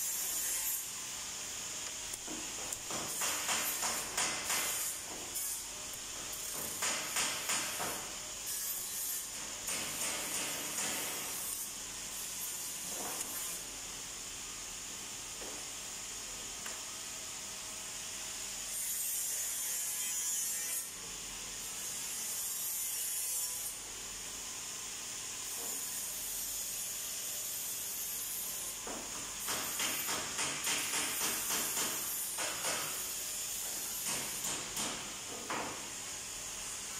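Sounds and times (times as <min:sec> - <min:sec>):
hand tool scraping strokes: 0:00.0 - 0:00.9, 0:02.2 - 0:13.7
steady high hiss: 0:00.0 - 0:18.8.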